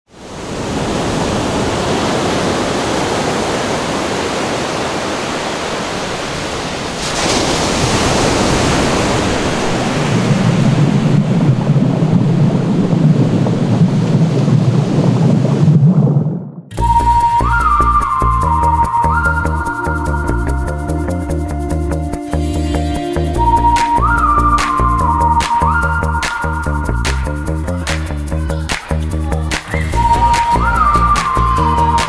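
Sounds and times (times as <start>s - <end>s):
ocean waves surging: 0.1s - 20.2s, 29.6s - 32.0s.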